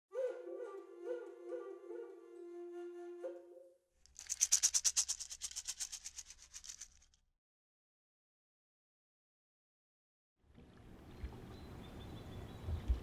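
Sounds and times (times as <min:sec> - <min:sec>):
shaker rattling: 0:04.0 - 0:07.2.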